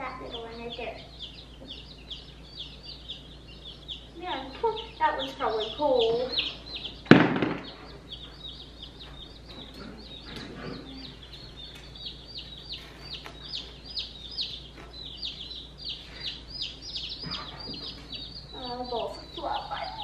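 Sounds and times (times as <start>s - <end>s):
baby chicks peeping: 0.0s - 20.0s.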